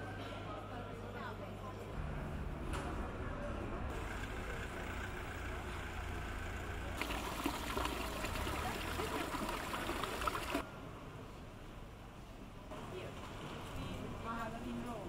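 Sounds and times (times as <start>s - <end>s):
water trickling and splashing: 7.0s - 10.6s.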